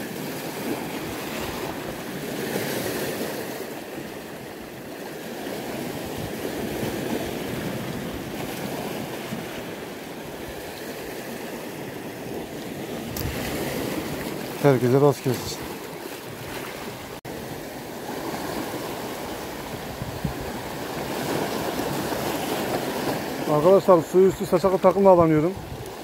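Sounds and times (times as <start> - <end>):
surf washing over pebbly shore: 5.3 - 26.0.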